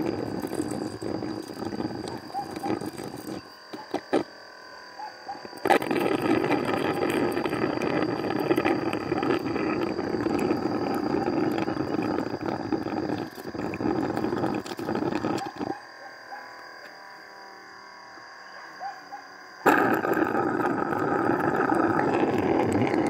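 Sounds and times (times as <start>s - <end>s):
honey slurping through suction tube: 0.0s - 4.3s, 5.5s - 15.8s, 19.6s - 23.0s.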